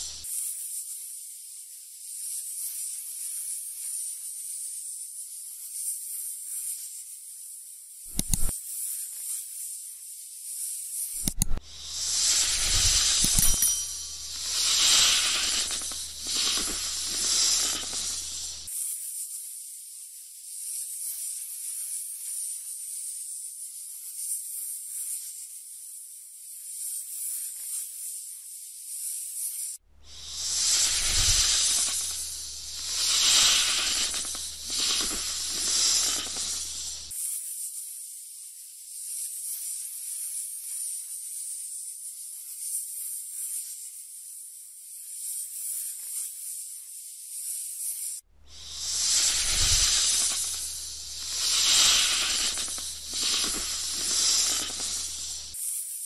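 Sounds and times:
snake hissing: 0.0 - 0.3, 8.1 - 8.5, 11.2 - 18.7, 30.0 - 37.2, 48.4 - 55.8.

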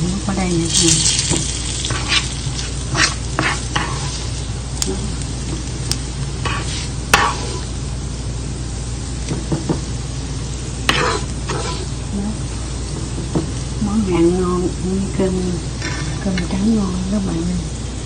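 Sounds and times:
low steady hum: 0.0 - 18.0
metal spoon scraping frying pan: 1.0 - 4.4, 6.4 - 7.7, 10.9 - 11.9, 15.8 - 16.6.

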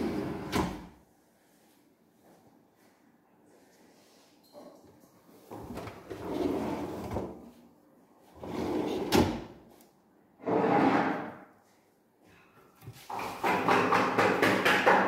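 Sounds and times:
drawers sliding on runners: 0.0 - 0.9, 5.6 - 7.4, 8.4 - 9.5.

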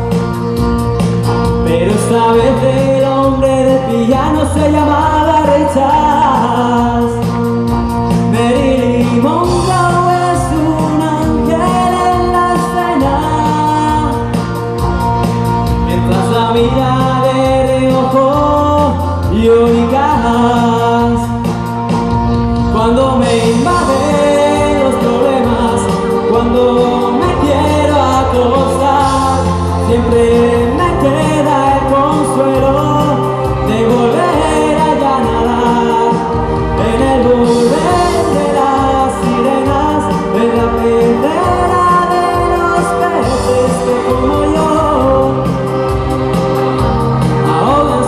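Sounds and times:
amplified instrumental backing: 0.0 - 48.0
man singing into a microphone: 1.2 - 48.0.

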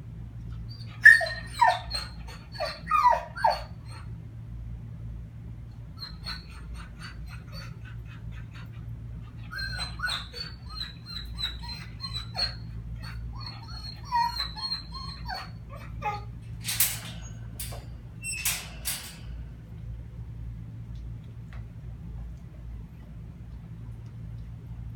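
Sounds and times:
dog whining and whimpering: 0.5 - 4.2, 5.9 - 19.3.

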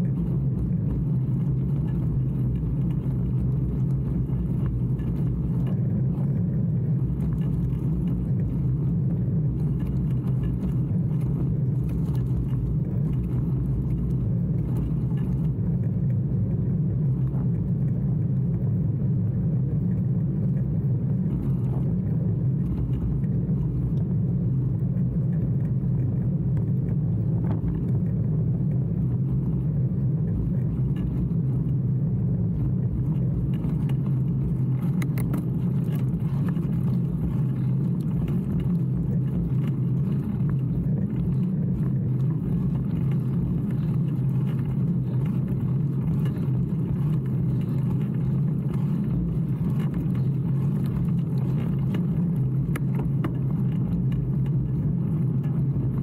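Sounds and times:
wind on microphone: 0.0 - 56.0
bicycle tyre noise: 19.9 - 56.0.

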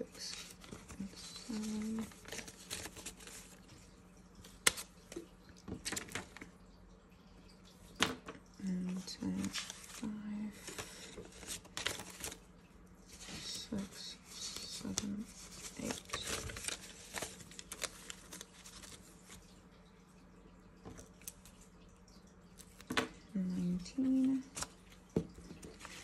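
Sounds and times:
banknotes rustling and flicking: 0.0 - 3.8, 8.8 - 12.4, 13.1 - 19.5.

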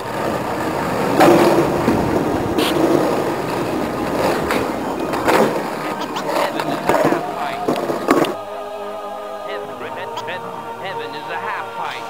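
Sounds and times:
skateboard clacks: 0.0 - 8.4
skateboard wheels rolling on concrete: 0.0 - 8.4.

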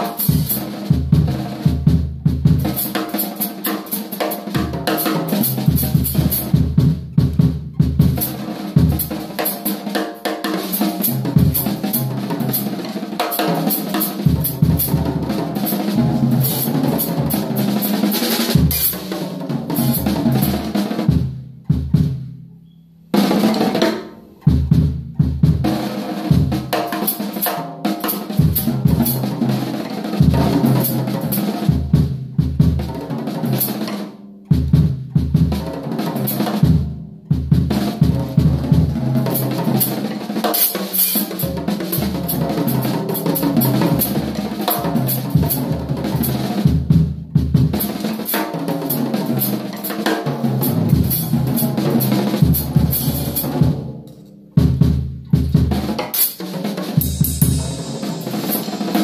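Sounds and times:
drum kit playing: 0.0 - 22.4, 23.1 - 59.0
cymbals crashing: 56.2 - 59.0.

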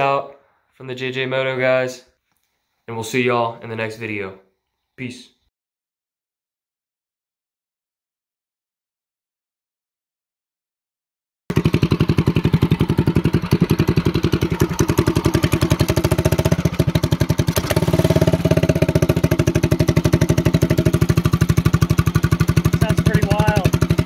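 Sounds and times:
small engine exhaust idling: 11.5 - 24.0.

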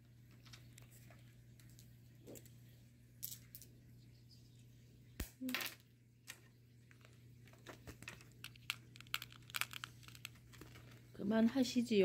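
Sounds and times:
stones clicking: 6.9 - 11.0.

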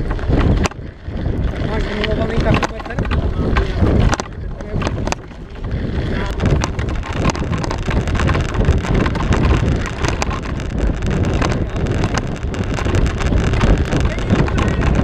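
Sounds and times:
rattle of clicks and knocks: 0.0 - 0.8, 1.4 - 15.0
bike tyres rumbling on dirt: 0.0 - 15.0
wind buffeting microphone: 0.0 - 15.0.

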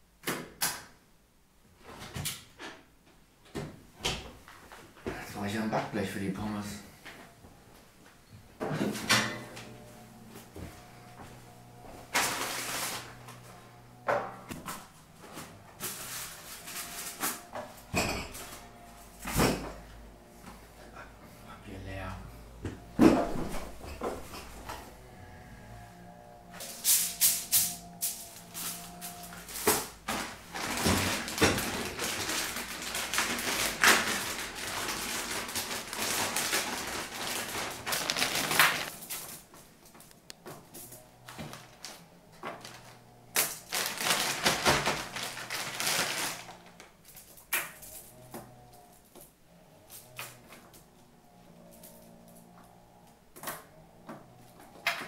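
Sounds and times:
cardboard packets rustling: 9.6 - 14.0, 26.6 - 40.3, 41.2 - 48.1
plastic bag crinkling: 12.2 - 13.4, 27.8 - 39.5, 42.6 - 46.8.

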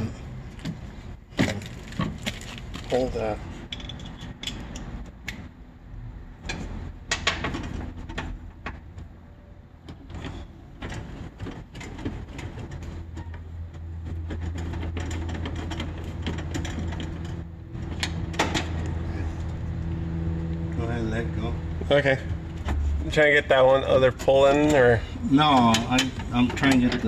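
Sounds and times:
low engine hum: 12.9 - 25.3.

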